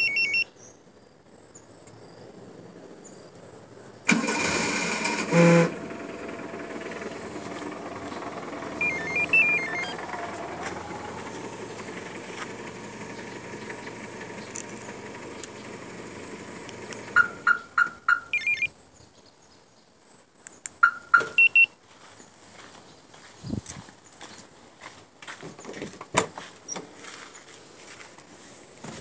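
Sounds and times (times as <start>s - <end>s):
car alarm beeping tune: 0.0s - 0.5s, 8.6s - 10.6s, 17.2s - 18.7s, 20.8s - 21.8s
sharp electronic beeps: 0.0s - 0.5s, 8.8s - 10.0s, 17.2s - 18.7s, 20.8s - 21.8s
car engine idling: 4.1s - 18.7s.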